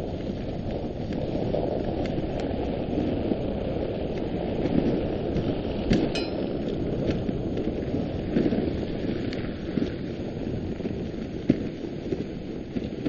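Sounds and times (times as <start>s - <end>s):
wind: 0.0s - 13.0s
sharp ringing clink: 6.2s - 6.6s
sled runners rushing on snow: 7.2s - 13.0s.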